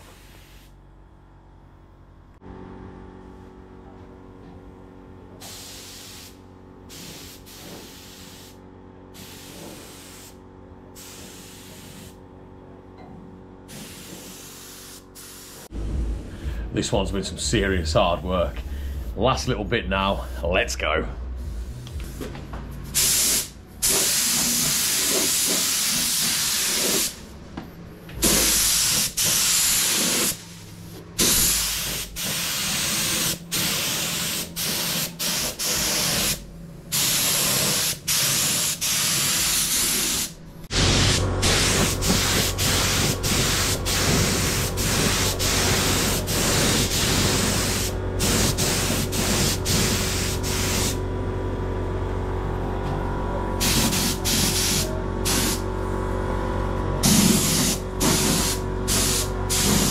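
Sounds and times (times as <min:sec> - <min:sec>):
steady low hum: 0:00.0 - 0:59.9
paint spray gun hissing: 0:05.4 - 0:08.6, 0:09.2 - 0:10.4, 0:11.0 - 0:12.2, 0:13.7 - 0:15.7, 0:22.9 - 0:27.2, 0:28.2 - 0:51.0, 0:53.6 - 0:55.6, 0:57.0 - 0:59.9.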